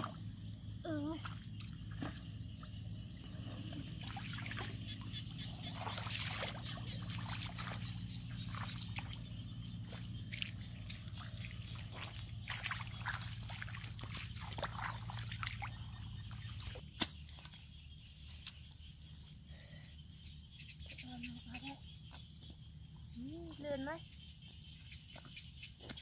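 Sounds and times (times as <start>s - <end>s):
feet splashing in muddy water: 1.2s - 17.6s.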